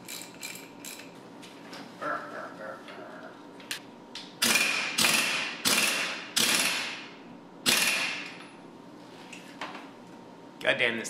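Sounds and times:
pneumatic impact wrench hammering: 4.4 - 8.4.

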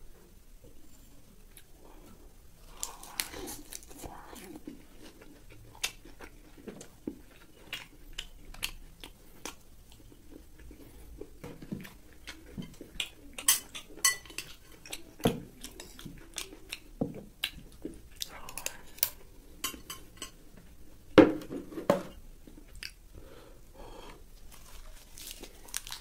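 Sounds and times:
mouth chewing: 1.5 - 19.2.

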